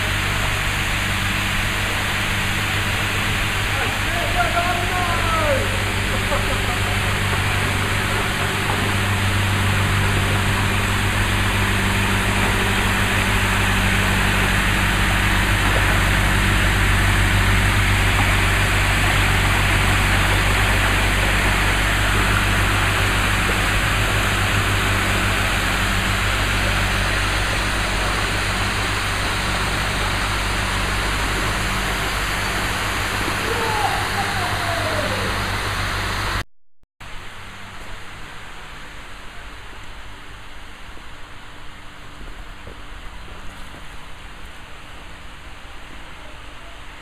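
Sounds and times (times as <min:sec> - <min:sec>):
boat diesel engine: 0:00.0 - 0:36.5.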